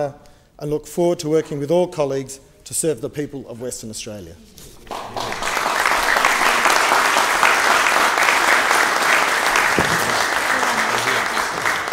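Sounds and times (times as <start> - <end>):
dense applause: 4.8 - 11.9.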